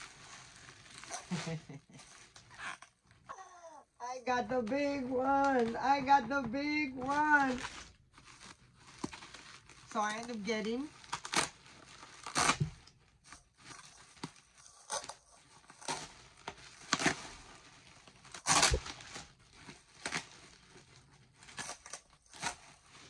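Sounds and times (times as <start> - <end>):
loud packaging rips: 0.0 - 3.1, 7.1 - 23.0
packaging tearing and crinkling: 0.0 - 3.2, 7.0 - 23.0.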